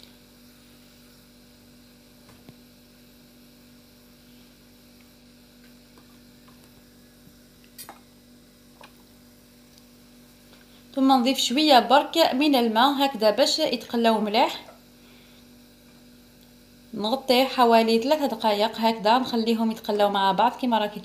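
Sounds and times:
faint electrical hum: 0:00.0 - 0:21.0.

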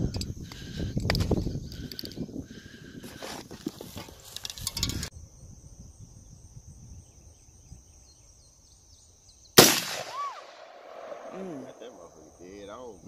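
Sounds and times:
rifle shot: 0:09.6 - 0:12.0.

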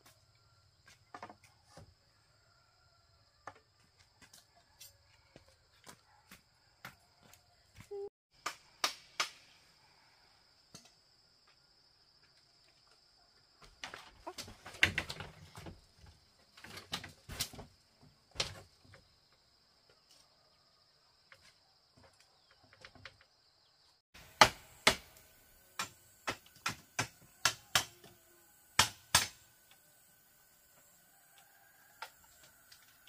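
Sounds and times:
hand tool striking bamboo: 0:24.2 - 0:28.2, 0:28.8 - 0:29.8.

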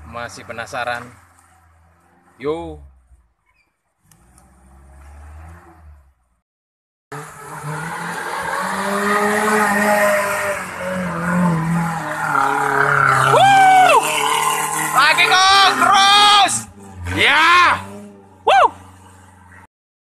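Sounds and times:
short rising-and-falling cry: 0:13.1 - 0:14.4.

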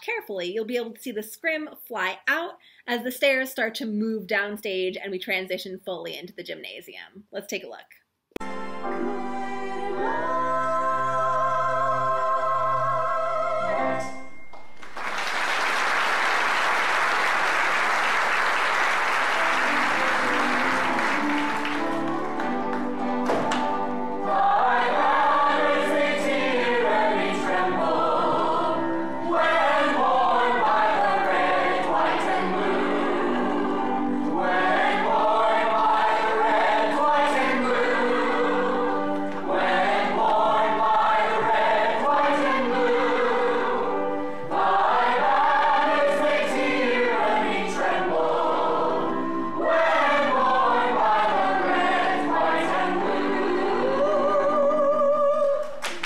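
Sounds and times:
choir singing: 0:08.4 - 0:14.3, 0:15.4 - 0:55.8
sustained musical accompaniment: 0:08.4 - 0:55.9.

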